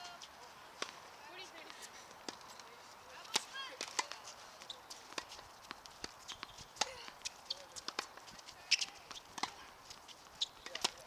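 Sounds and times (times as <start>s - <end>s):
tennis ball bouncing: 0.8s - 11.0s
tennis racket hitting ball: 3.2s - 4.3s, 5.0s - 9.8s, 10.4s - 11.0s.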